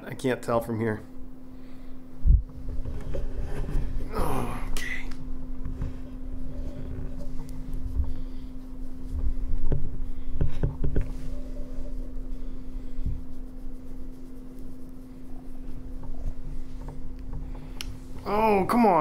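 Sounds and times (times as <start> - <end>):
steady low hum: 0.0 - 19.0
rustling against camera: 2.2 - 4.1, 5.4 - 18.2.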